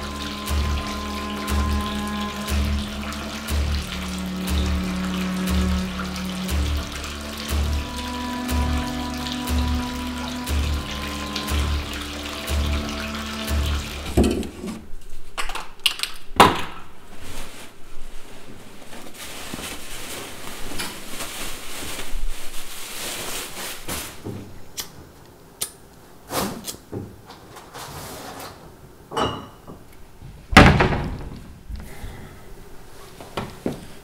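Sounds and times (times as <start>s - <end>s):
rustling: 17.0s - 24.5s.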